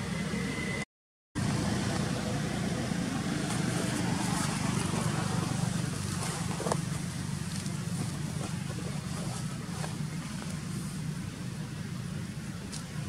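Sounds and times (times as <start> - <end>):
low outdoor background rumble: 1.4 - 13.0.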